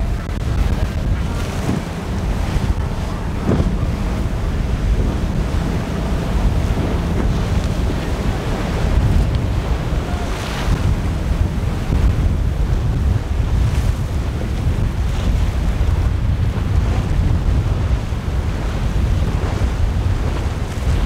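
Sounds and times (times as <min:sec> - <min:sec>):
rough sea breaking waves: 0:00.0 - 0:21.0
wind buffeting microphone: 0:00.0 - 0:21.0.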